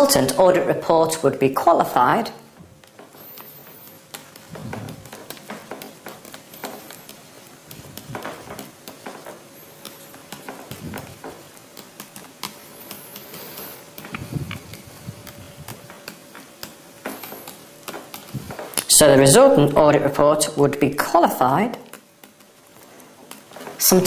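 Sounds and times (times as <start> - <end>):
faint electrical hum: 0.0 - 24.0
pen scratching on paper: 9.6 - 15.9.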